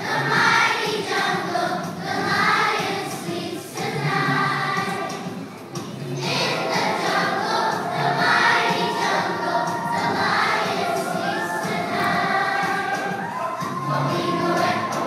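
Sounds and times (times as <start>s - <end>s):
children's choir singing: 0.0s - 15.0s.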